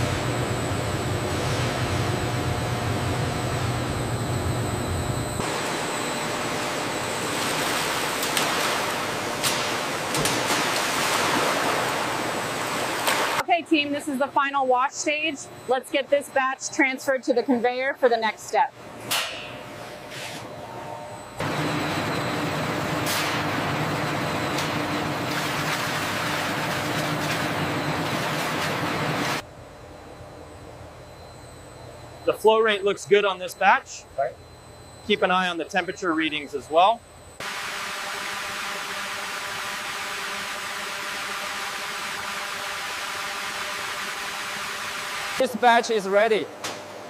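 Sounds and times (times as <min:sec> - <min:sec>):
low machine hum: 0:00.0 - 0:47.0
water rushing in steel tanks: 0:05.5 - 0:13.4, 0:21.4 - 0:29.4
water gushing into metal tank: 0:25.0 - 0:28.6.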